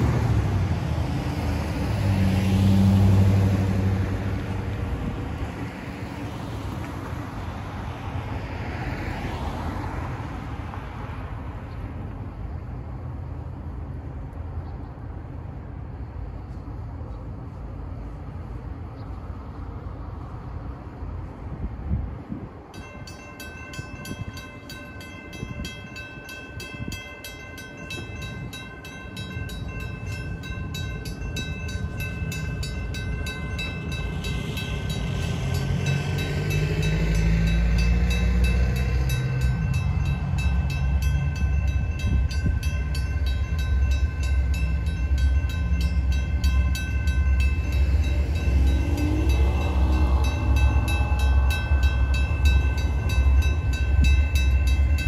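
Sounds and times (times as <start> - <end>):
diesel locomotive rumble: 0.0 - 55.0
railroad crossing bell ringing: 22.7 - 55.0.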